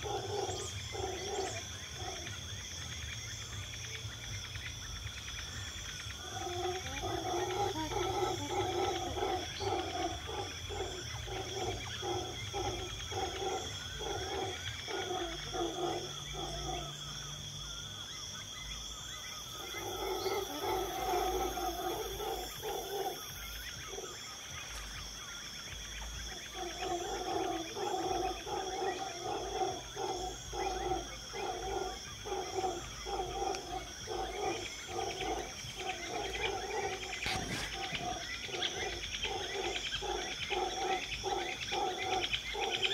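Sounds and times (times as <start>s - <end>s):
high-pitched insect drone: 0.0s - 42.9s
animal calling low repeated notes: 6.1s - 17.0s, 26.2s - 42.9s.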